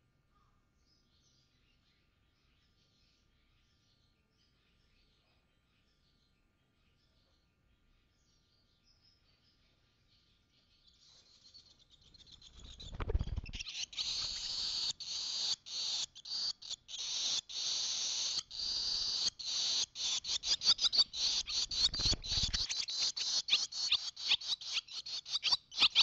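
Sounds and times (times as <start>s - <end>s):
swallow twittering song: 6.8s - 26.0s
bird wingbeats fluttering: 12.2s - 14.5s, 20.6s - 23.2s.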